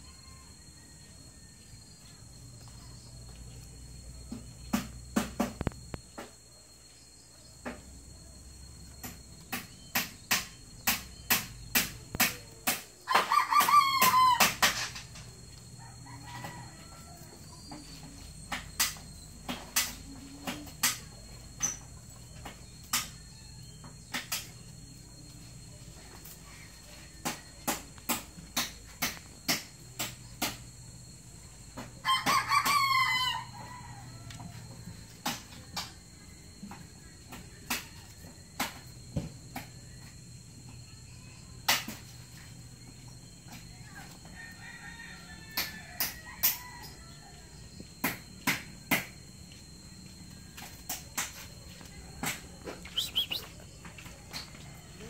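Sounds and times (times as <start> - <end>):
rooster crowing: 0.0 - 1.9, 13.0 - 15.0, 15.6 - 18.0, 32.0 - 35.0, 44.0 - 47.8, 53.0 - 53.4.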